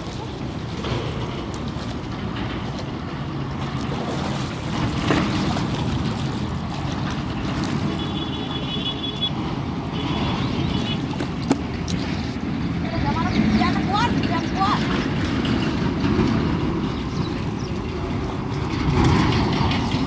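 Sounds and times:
low outdoor rumble: 0:00.0 - 0:20.0.

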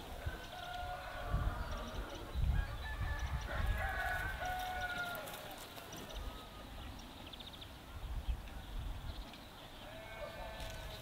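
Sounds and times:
rooster crowing: 0:00.4 - 0:01.8, 0:02.6 - 0:05.6.

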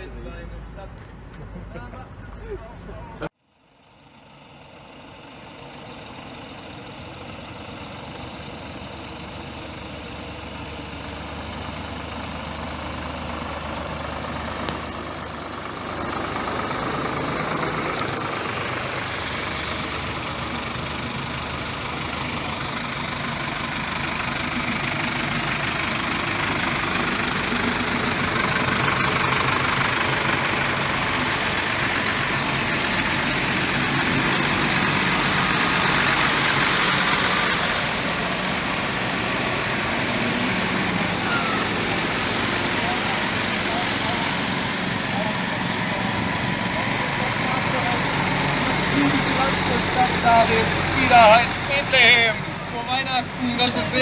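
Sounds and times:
tractor diesel engines running: 0:00.0 - 0:54.0.

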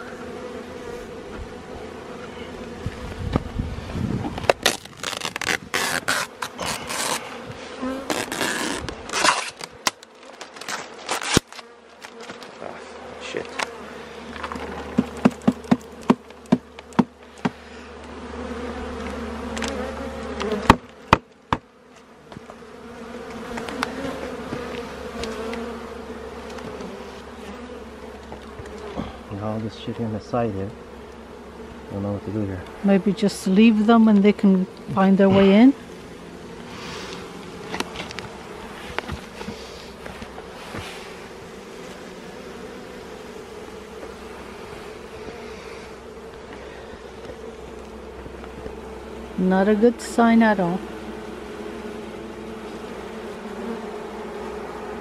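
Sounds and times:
bees buzzing: 0:00.0 - 0:55.0.

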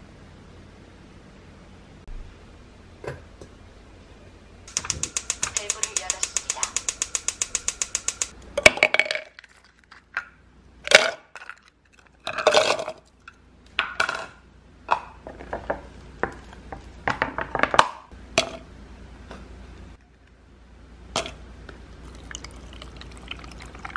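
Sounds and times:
gas stove igniter clicking: 0:04.7 - 0:08.4.

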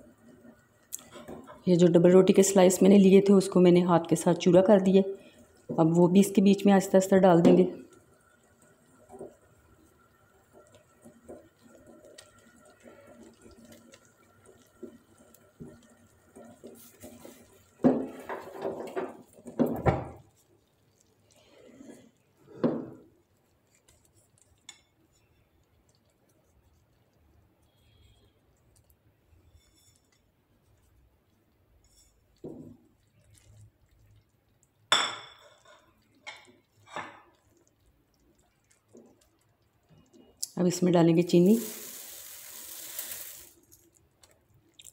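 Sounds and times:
spoon stirring thick custard: 0:23.1 - 0:34.8.

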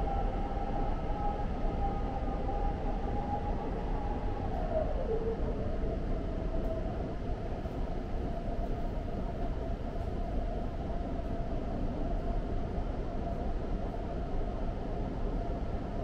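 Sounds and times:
train rumble in tunnel: 0:00.0 - 0:16.0.

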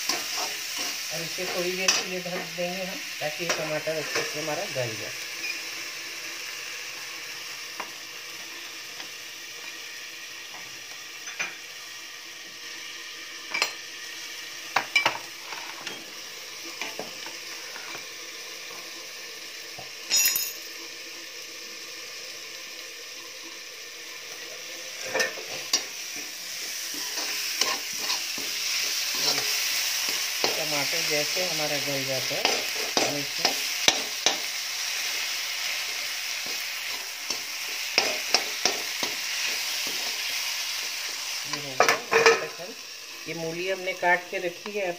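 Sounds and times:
steel spatula scraping a pan: 0:00.0 - 0:02.4, 0:25.0 - 0:31.5, 0:32.2 - 0:41.2
masala sizzling in a covered pan: 0:00.0 - 0:44.9
steel clinks and knocks: 0:20.1 - 0:20.6.

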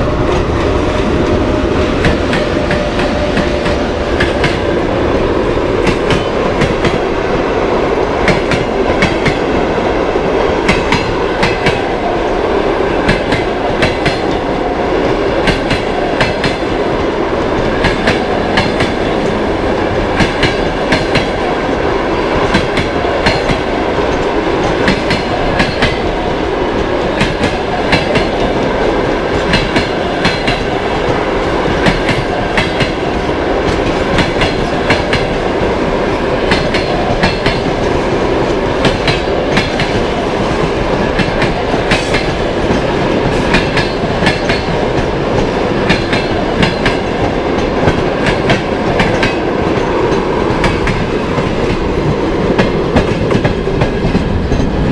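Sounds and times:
train rumble: 0:00.0 - 0:54.9
train wheels clattering over rail joints: 0:22.4 - 0:26.2, 0:26.8 - 0:35.7, 0:36.4 - 0:54.9.

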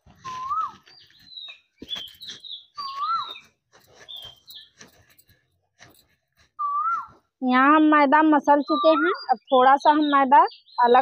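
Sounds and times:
bird whistled call: 0:00.2 - 0:03.4, 0:06.6 - 0:07.1
small bird chirping: 0:00.2 - 0:05.1, 0:08.5 - 0:11.0.

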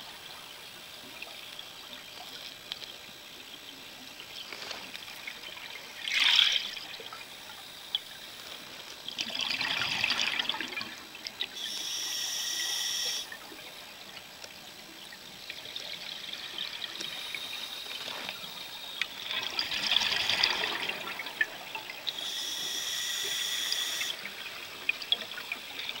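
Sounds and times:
regulator hissing: 0:11.6 - 0:13.3, 0:22.1 - 0:24.4.

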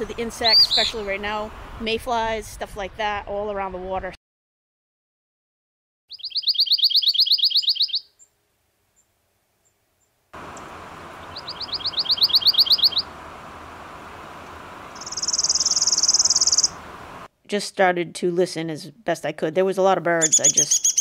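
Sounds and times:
bird singing musical trills: 0:00.0 - 0:01.2, 0:06.1 - 0:08.3, 0:10.4 - 0:17.0, 0:20.2 - 0:21.0
steady outdoor hiss: 0:00.0 - 0:03.9, 0:06.1 - 0:21.0.

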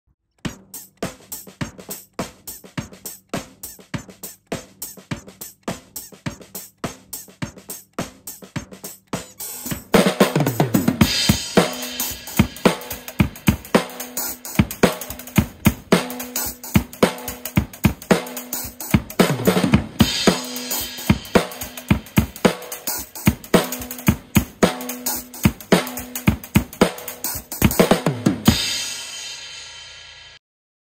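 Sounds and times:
drum kit groove: 0:00.4 - 0:30.4
chain cymbal stack: 0:00.5 - 0:19.3, 0:20.0 - 0:29.9.

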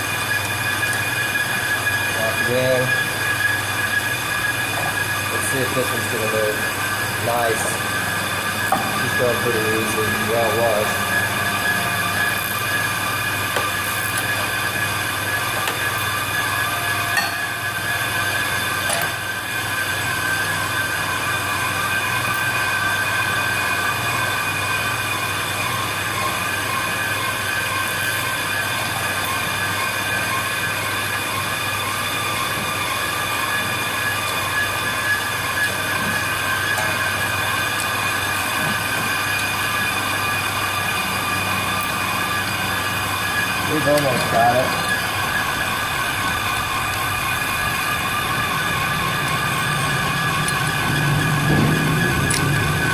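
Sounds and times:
high-pitched metallic ringing: 0:00.0 - 0:52.9
lathe motor hum: 0:00.0 - 0:52.9.

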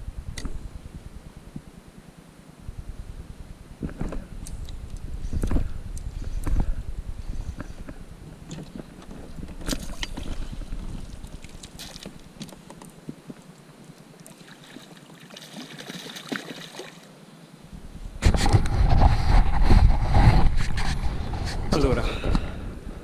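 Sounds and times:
water splashing and lapping: 0:08.5 - 0:12.8, 0:13.8 - 0:17.1.

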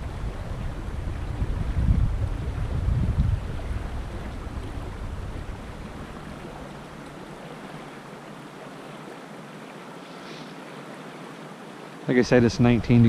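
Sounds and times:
wind buffeting microphone: 0:00.0 - 0:08.0, 0:12.2 - 0:13.0
creek water flowing: 0:00.0 - 0:13.0.

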